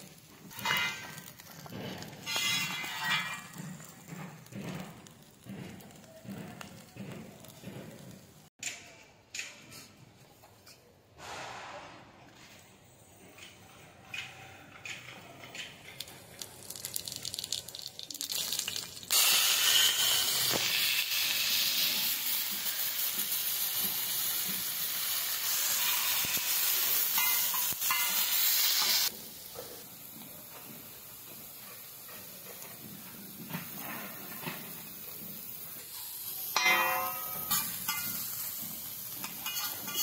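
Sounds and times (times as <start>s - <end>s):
food sizzling in hot oil: 0.0s - 6.0s, 16.0s - 40.0s.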